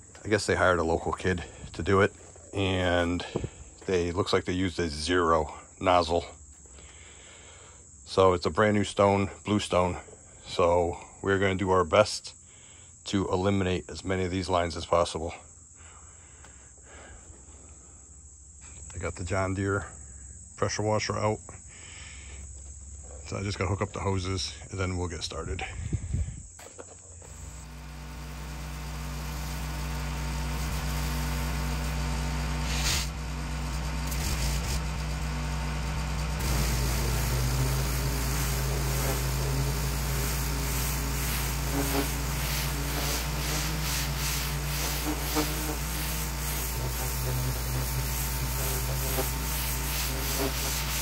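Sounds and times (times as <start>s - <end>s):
pressure washer engine running: 27.2s - 51.0s
water spray hissing on stone: 32.6s - 33.1s, 34.1s - 34.8s, 36.4s - 51.0s.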